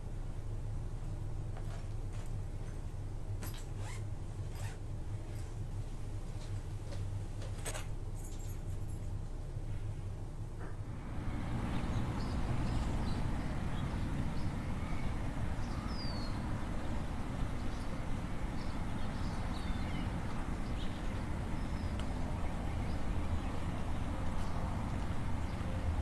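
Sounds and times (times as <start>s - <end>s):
distant traffic rumble: 0.0s - 26.0s
bird chirps: 11.7s - 23.8s.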